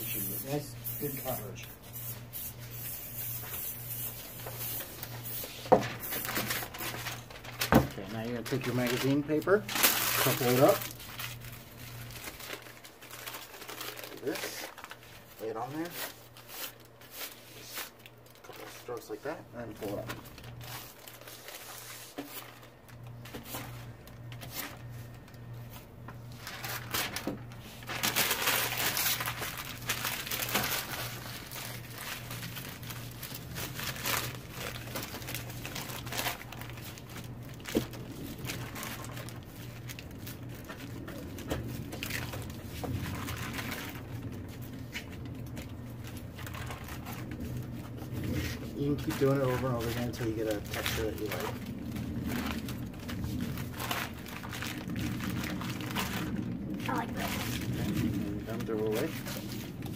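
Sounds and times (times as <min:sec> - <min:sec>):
magazine paper crinkling: 0:00.1 - 0:59.9.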